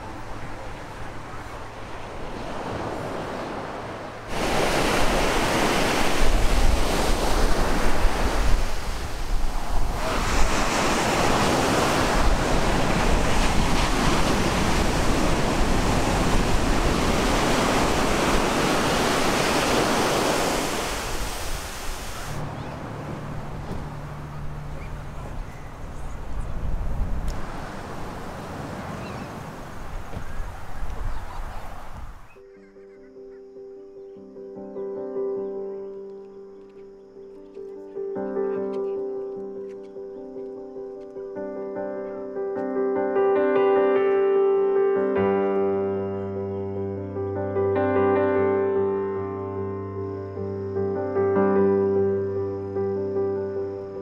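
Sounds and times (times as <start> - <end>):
wind gusting on microphone: 0.0 - 32.4
surf breaking on beach: 1.0 - 25.5, 26.7 - 32.0.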